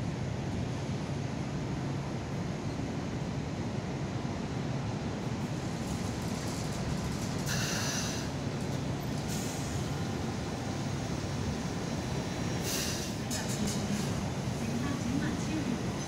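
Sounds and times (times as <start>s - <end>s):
light rail train rumbling: 0.0s - 16.0s
high-pitched brake squeal: 7.5s - 8.3s.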